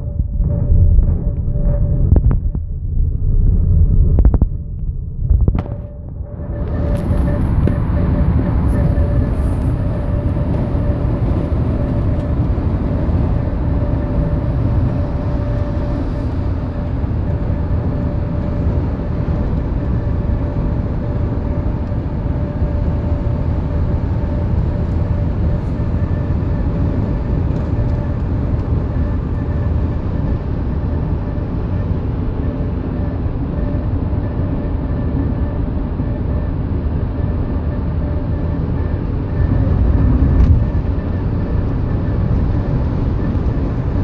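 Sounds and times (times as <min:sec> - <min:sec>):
road and wind noise in car: 0:00.0 - 0:44.0
steady whining tone: 0:00.0 - 0:44.0.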